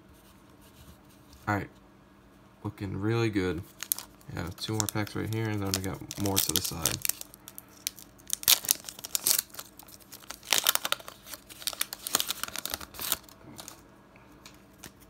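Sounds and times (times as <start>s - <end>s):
foil wrapper tearing and crinkling: 3.6s - 13.8s
cards sliding out of wrapper: 5.6s - 13.8s.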